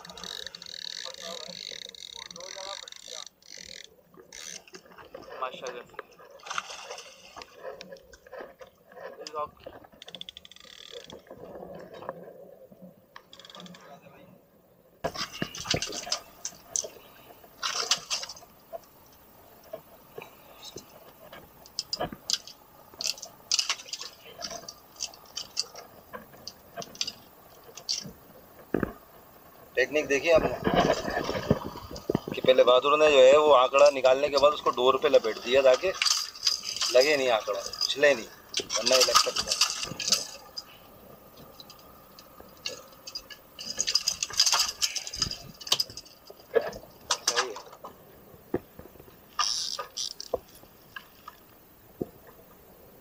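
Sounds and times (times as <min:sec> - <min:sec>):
fishing hooks and pliers clicking: 0:00.0 - 0:04.8.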